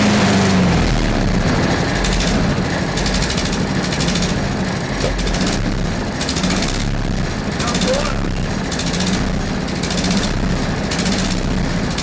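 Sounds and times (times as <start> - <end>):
lawn mower engine running: 0.0 - 12.0.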